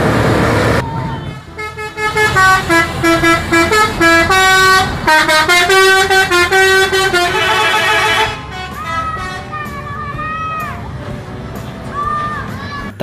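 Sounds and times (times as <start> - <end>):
bus horn playing melody: 1.3 - 9.8
single horn note bending: 1.6 - 9.4.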